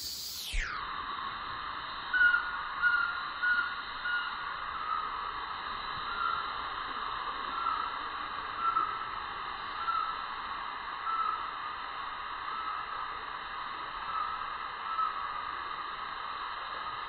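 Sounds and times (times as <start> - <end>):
high-pitched hissing drone: 0.0 - 10.4.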